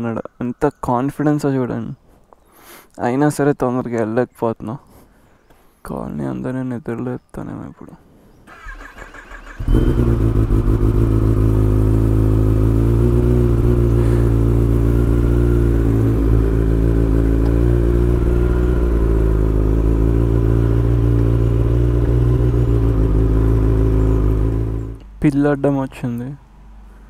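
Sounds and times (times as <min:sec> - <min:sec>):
motorcycle engine at low revs: 0:08.6 - 0:25.2.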